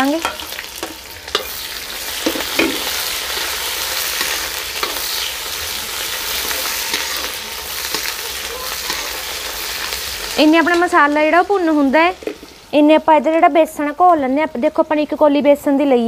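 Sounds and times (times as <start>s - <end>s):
onion and garlic sizzling in oil: 0.0s - 16.0s
metal ladle scraping pan: 0.1s - 10.2s.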